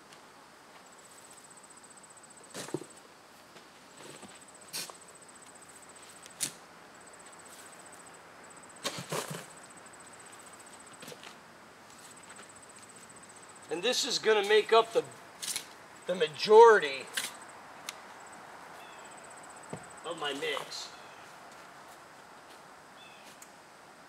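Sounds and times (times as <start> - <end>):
cricket trilling: 4.0 - 21.5, 22.8 - 23.7
manure knocks and scrapes: 8.8 - 9.5.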